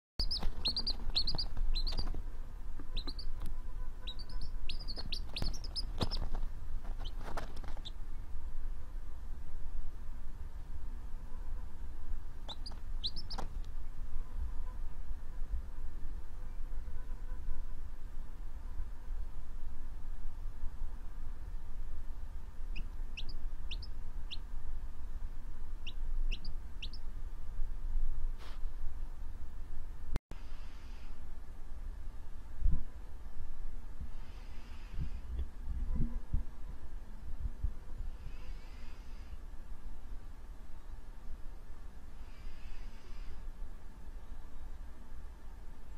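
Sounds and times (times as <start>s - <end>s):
chick peeping: 0.2s - 2.2s, 2.8s - 8.0s, 12.4s - 13.6s, 22.7s - 24.5s, 25.8s - 27.0s.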